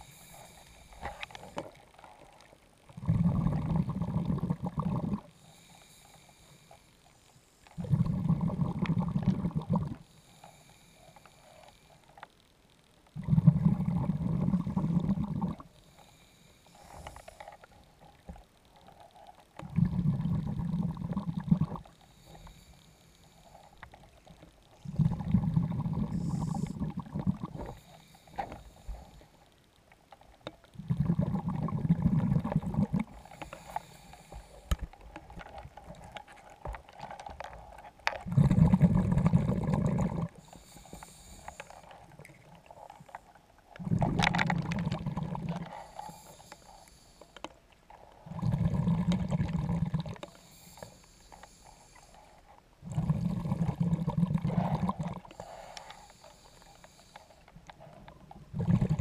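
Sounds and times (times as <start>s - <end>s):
regulator inhalation hiss: 0.0s - 1.6s, 5.3s - 7.8s, 10.0s - 12.2s, 15.7s - 17.7s, 21.9s - 23.8s, 25.8s - 26.9s, 27.5s - 29.5s, 33.1s - 34.9s, 40.4s - 42.0s, 45.7s - 47.5s, 50.3s - 52.4s, 55.3s - 57.5s
diver exhaling bubbles underwater: 3.0s - 5.3s, 7.8s - 10.0s, 13.2s - 15.7s, 19.6s - 21.9s, 24.8s - 27.8s, 30.8s - 33.2s, 38.2s - 40.4s, 43.8s - 45.7s, 48.2s - 50.2s, 52.8s - 55.4s, 58.4s - 59.0s.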